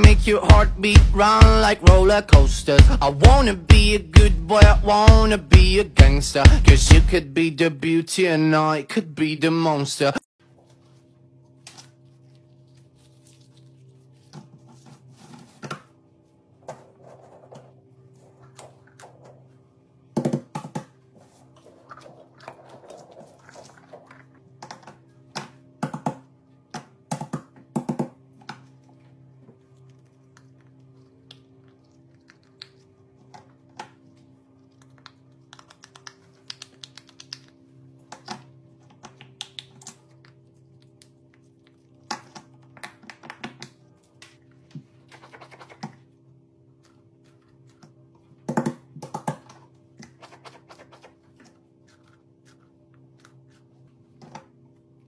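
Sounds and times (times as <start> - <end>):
background music: 0.0 - 7.8.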